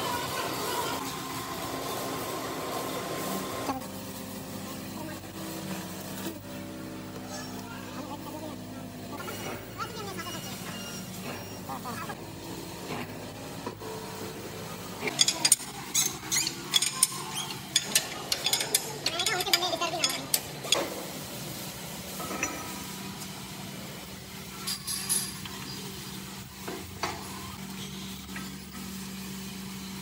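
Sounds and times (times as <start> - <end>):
metal tools clinking and rattling: 15.0 - 20.5, 24.6 - 25.4.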